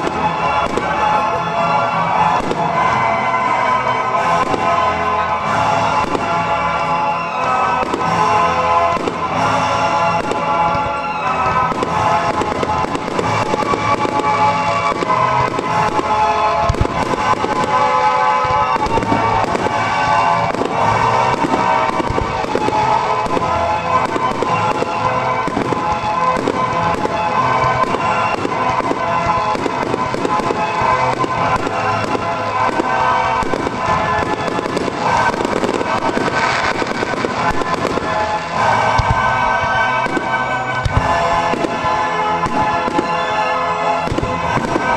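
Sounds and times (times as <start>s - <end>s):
fireworks bursting and crackling: 0.0s - 44.9s
music with held tones: 0.0s - 44.9s.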